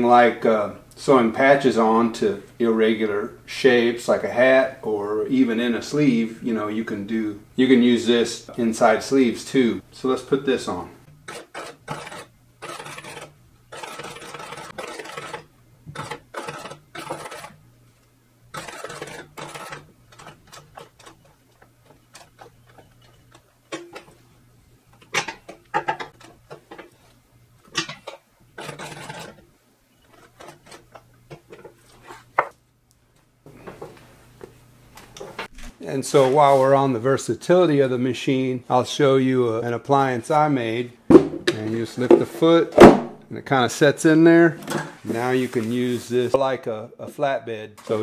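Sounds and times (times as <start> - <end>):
sewing machine stitching: 11.2 - 17.6, 18.5 - 21.3, 28.6 - 29.4.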